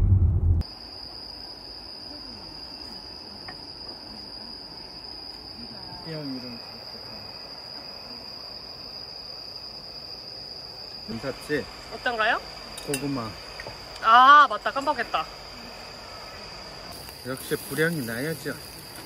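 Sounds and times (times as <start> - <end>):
crickets trilling: 0.6 - 19.0.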